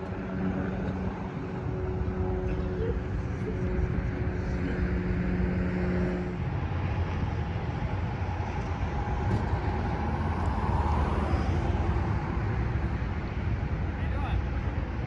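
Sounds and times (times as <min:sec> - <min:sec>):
freeway traffic roar: 0:00.0 - 0:15.0
low engine hum: 0:00.0 - 0:15.0.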